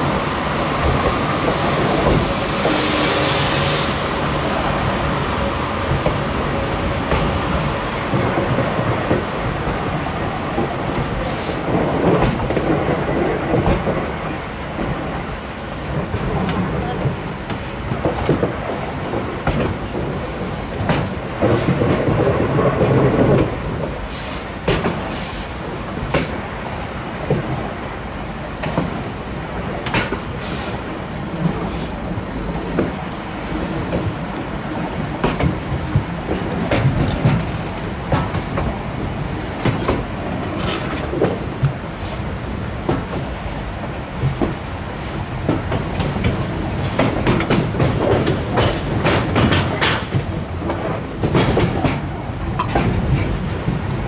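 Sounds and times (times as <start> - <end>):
train wheels rumbling on rails: 0.0 - 54.0
wheels clicking over rail joints: 28.5 - 34.4, 35.1 - 54.0.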